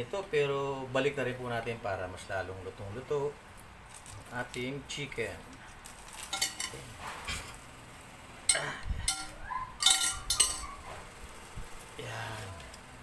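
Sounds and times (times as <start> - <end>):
metal tongs clinking on glass: 6.1 - 7.5, 8.5 - 10.8.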